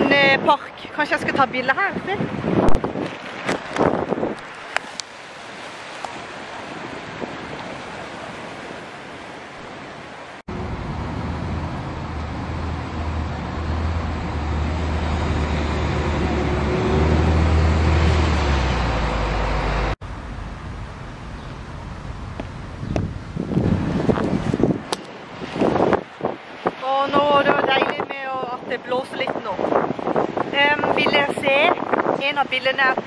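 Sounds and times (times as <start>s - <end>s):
wind buffeting microphone: 0.0s - 33.0s
road traffic: 2.2s - 26.8s.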